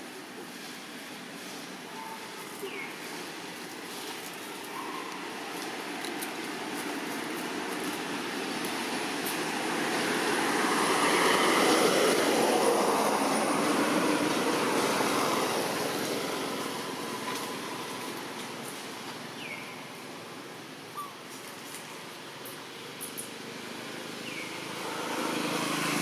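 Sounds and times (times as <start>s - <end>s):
vehicle passing by: 7.4s - 18.0s, 23.6s - 26.0s.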